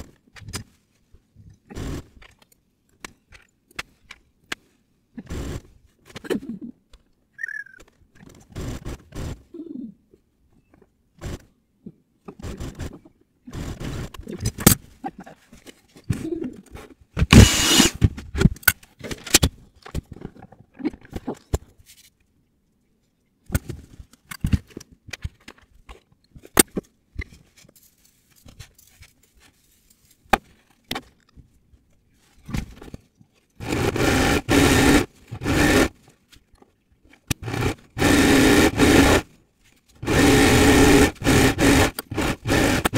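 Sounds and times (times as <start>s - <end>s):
steady machine-like noise: 17.3s - 18.0s, 37.4s - 39.2s, 40.0s - 42.9s.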